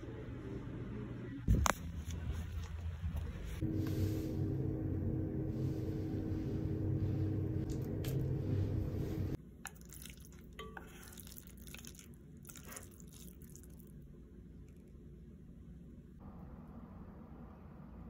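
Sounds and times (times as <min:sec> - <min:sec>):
loud steady low hum: 0:00.0 - 0:09.5
chopsticks stirring noodles in a pot: 0:07.0 - 0:13.9.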